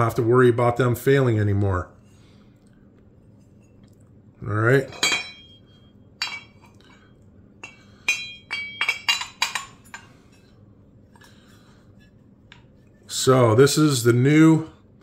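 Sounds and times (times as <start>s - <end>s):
metal parts clinking together: 7.6s - 10.1s.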